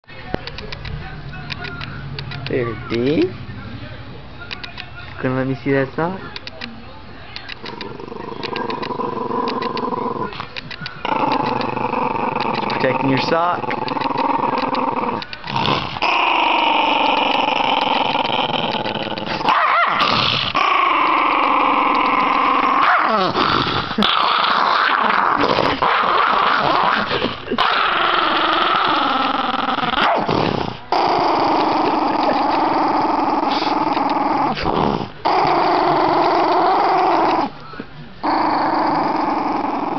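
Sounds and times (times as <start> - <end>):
dog growling: 7.6 - 37.6, 38.2 - 39.9.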